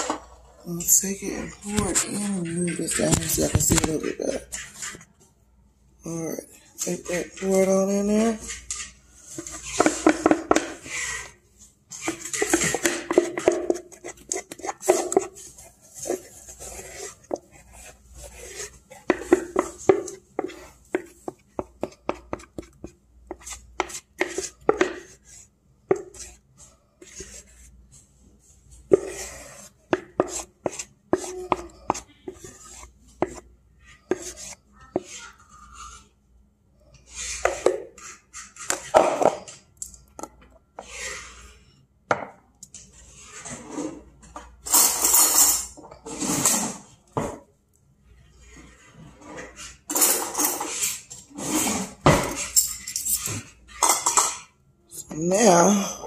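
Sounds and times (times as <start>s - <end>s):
utensil scraping a mixing bowl: 0.0s - 5.1s, 6.8s - 36.2s, 36.8s - 39.7s, 40.7s - 41.8s, 42.7s - 44.4s, 48.1s - 52.6s
dishes and utensils clattering: 43.5s - 47.4s, 49.4s - 54.6s.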